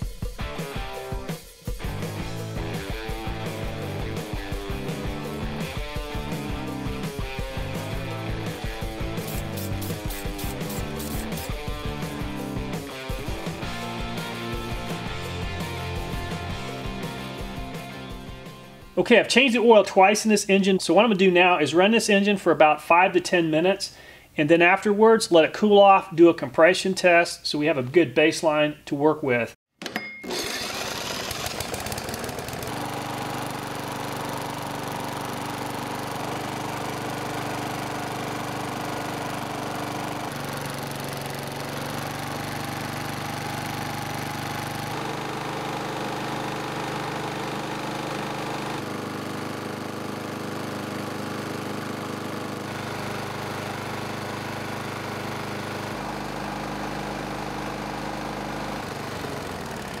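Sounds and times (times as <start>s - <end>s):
lawn mower engine running: 1.8s - 18.5s, 29.8s - 60.0s.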